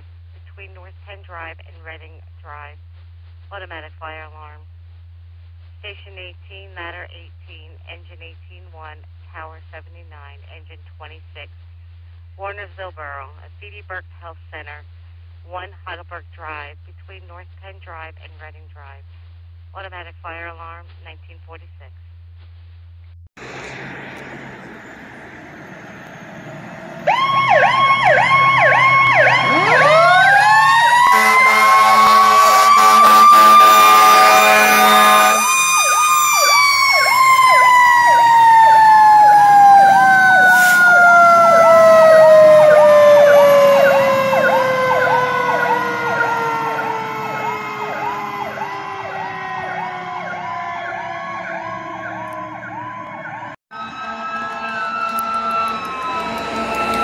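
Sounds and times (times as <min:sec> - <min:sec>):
fire truck horn: 0:23.4 - 0:57.0
electronic siren yelping: 0:27.0 - 0:57.0.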